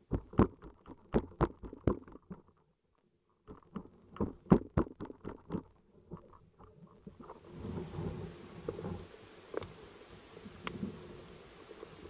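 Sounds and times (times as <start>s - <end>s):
underwater clicks and knocks: 0.0s - 2.7s, 3.4s - 7.4s.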